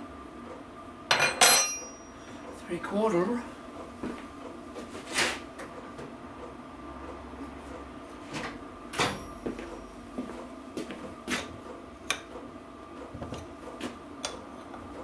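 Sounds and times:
metallic tool clinks and knocks: 1.1s - 2.0s.

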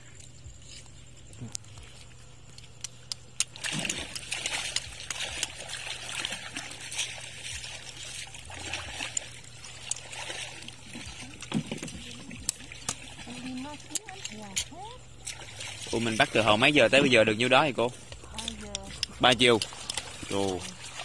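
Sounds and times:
water trickling and splashing: 0.0s - 21.0s
knife clicking against shells: 18.1s - 20.2s.

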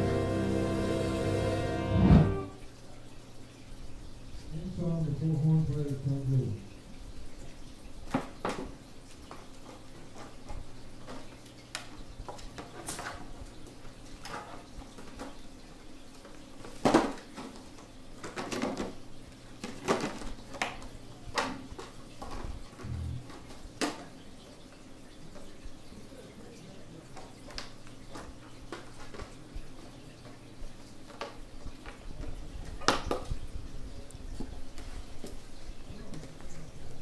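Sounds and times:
faint low hum: 22.7s - 23.6s.

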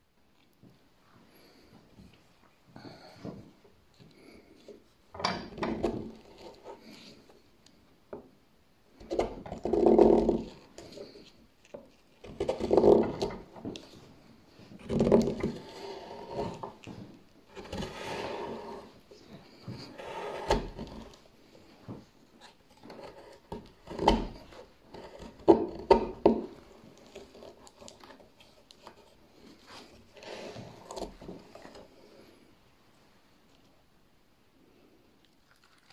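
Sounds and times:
gouge scraping wood: 12.2s - 13.6s, 14.6s - 19.0s, 19.6s - 21.3s, 22.4s - 31.9s.

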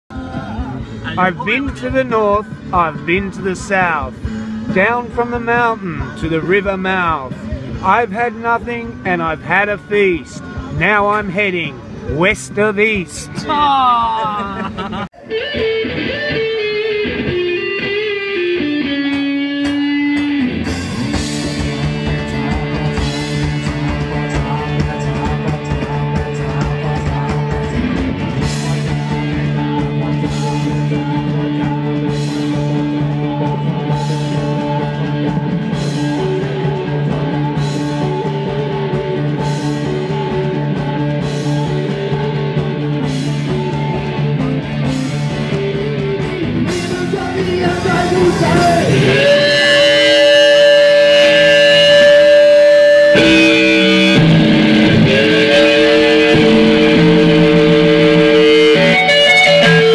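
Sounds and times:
rock music with electric guitar: 0.1s - 59.9s.

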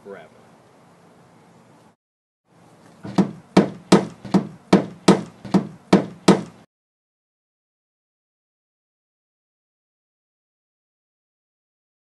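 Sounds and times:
hammer striking a plywood wall: 3.0s - 6.7s.

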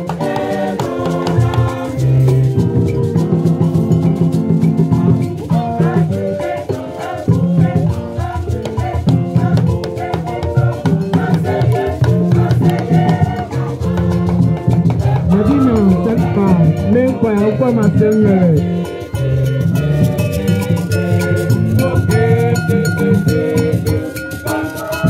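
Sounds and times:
choir singing upbeat song: 0.0s - 2.7s, 5.0s - 17.8s, 18.6s - 25.0s
drums: 0.0s - 16.4s
shaker-like percussion: 0.0s - 25.0s.

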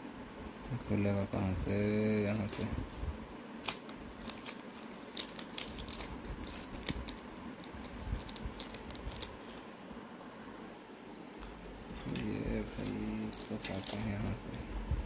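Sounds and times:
plastic packaging crinkling: 3.6s - 9.9s, 11.2s - 14.6s.

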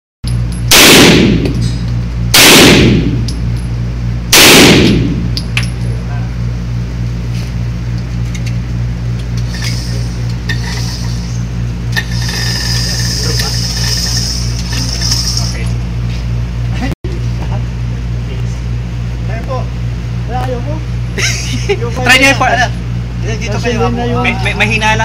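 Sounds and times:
steady low hum: 0.2s - 25.0s
pistol shots echoing indoors: 0.7s - 1.4s, 2.4s - 3.2s, 4.4s - 5.2s.

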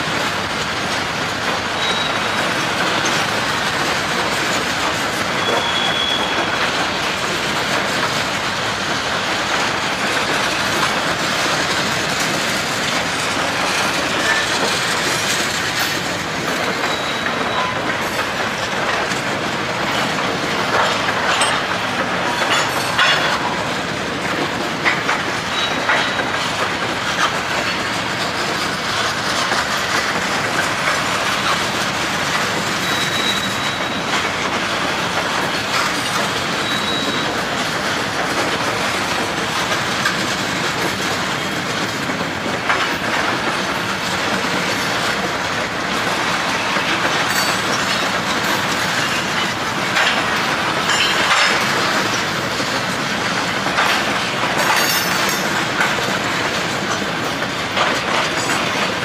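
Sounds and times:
freight train rolling rumble: 0.0s - 59.0s
wheels clicking over rails: 0.0s - 59.0s
high wheel squeals: 1.7s - 2.6s, 5.3s - 6.6s, 16.8s - 17.9s, 32.8s - 34.2s, 36.6s - 37.4s.

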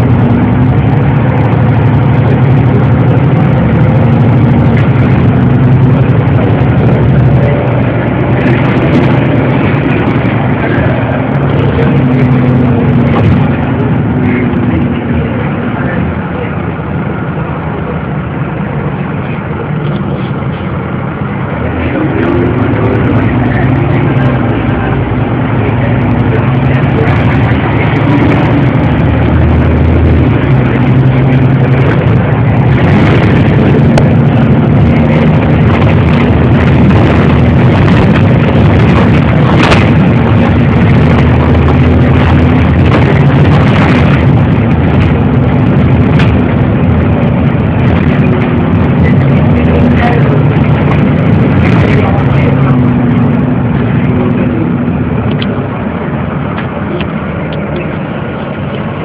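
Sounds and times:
bus engine drone: 0.0s - 59.0s.

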